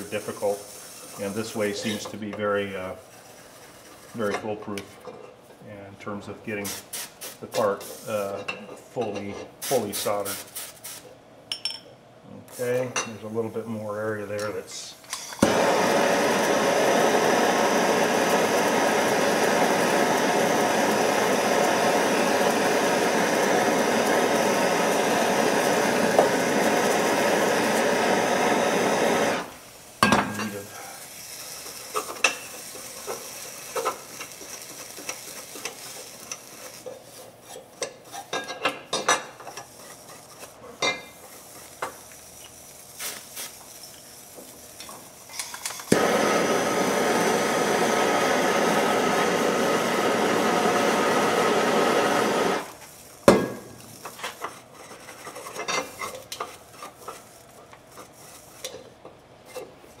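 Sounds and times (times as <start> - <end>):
gas torch hissing: 0.0 - 4.3, 6.5 - 8.3, 12.5 - 38.3, 39.0 - 54.7.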